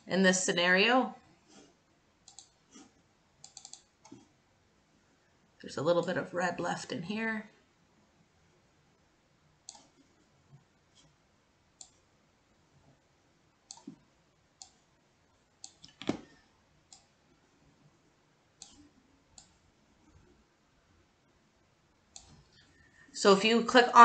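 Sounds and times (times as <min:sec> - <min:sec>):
computer mouse buttons clicking: 0:02.2 - 0:02.6, 0:03.4 - 0:04.3, 0:09.6 - 0:10.0, 0:13.7 - 0:14.0, 0:14.6 - 0:14.8, 0:15.6 - 0:17.1, 0:18.6 - 0:19.6.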